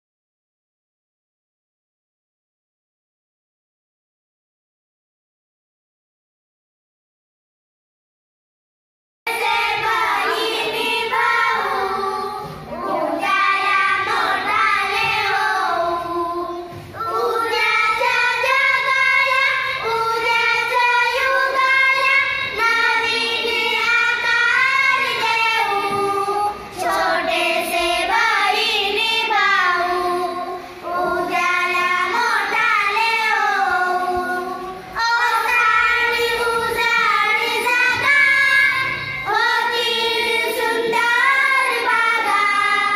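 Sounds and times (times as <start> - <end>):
girls singing together: 9.3 - 42.9.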